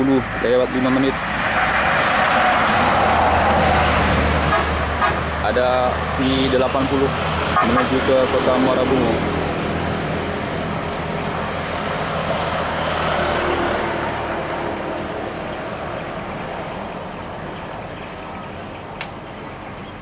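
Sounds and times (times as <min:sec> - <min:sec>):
car driving: 0:00.0 - 0:20.0
coach diesel engine: 0:00.0 - 0:20.0
sharp click: 0:19.0 - 0:19.2.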